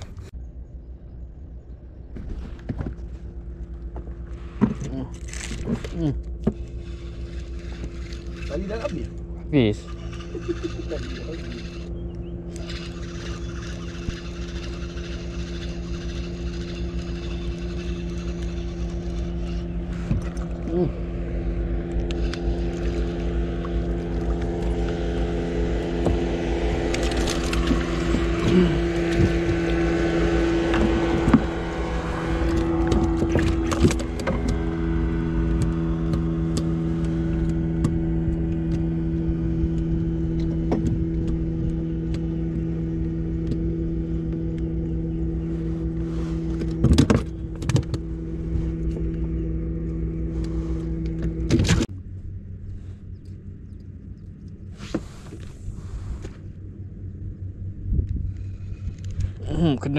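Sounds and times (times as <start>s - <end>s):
outboard motor running: 0.0s - 59.9s.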